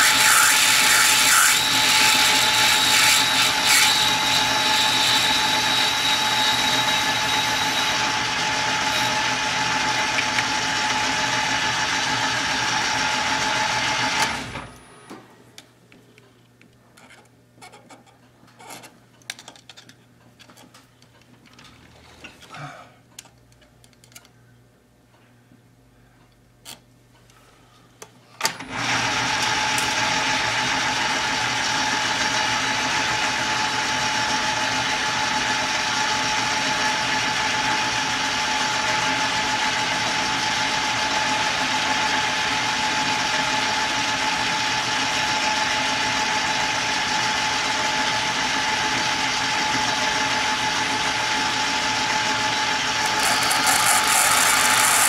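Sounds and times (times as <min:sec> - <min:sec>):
metal lathe running: 0:00.0 - 0:13.9, 0:51.8 - 0:55.0.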